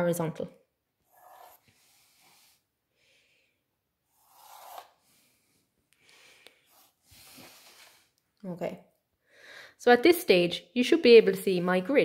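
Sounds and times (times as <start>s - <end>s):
pencil scraping along ruler: 1.0s - 2.6s, 4.0s - 5.2s, 6.7s - 8.1s
ruler sliding across paper: 1.1s - 2.6s, 4.1s - 5.2s.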